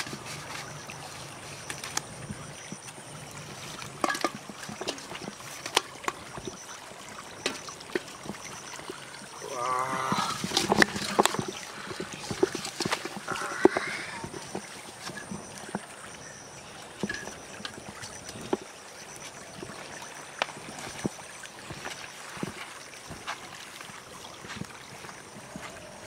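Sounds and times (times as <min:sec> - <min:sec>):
water splashing: 0:00.0 - 0:26.0
basket knocking on pot: 0:04.0 - 0:05.1.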